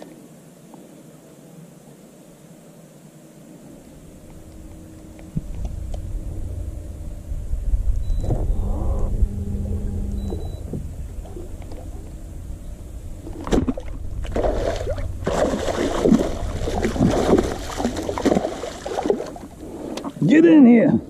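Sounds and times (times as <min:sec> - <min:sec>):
low rumble: 0:03.8 - 0:20.2
fish splashing at surface: 0:13.4 - 0:20.2.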